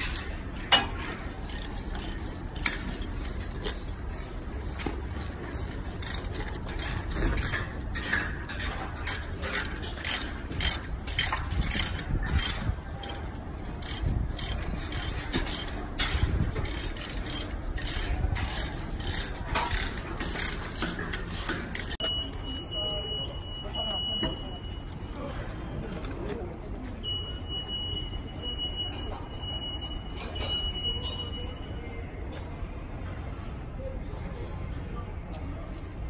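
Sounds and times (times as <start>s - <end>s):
ratchet wrench clicking: 0.0s - 22.0s.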